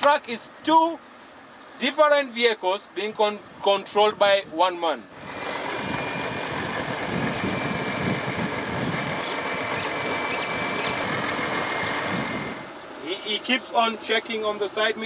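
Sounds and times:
truck diesel engine rumbling: 0:00.0 - 0:15.0
steady high whine: 0:05.0 - 0:15.0.

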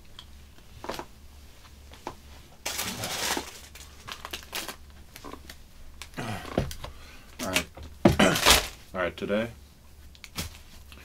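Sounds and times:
faint low hum: 0:00.0 - 0:11.0
crinkling and rustling: 0:00.2 - 0:08.9.

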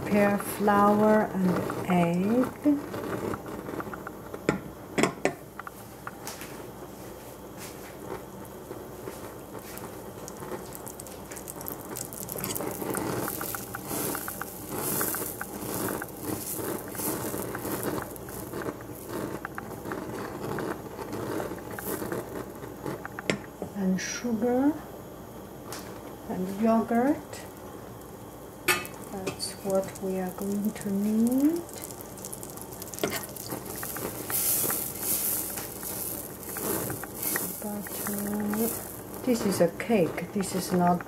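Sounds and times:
butter sizzling in a saucepan: 0:00.0 - 0:05.0, 0:07.6 - 0:24.5, 0:25.4 - 0:41.0.

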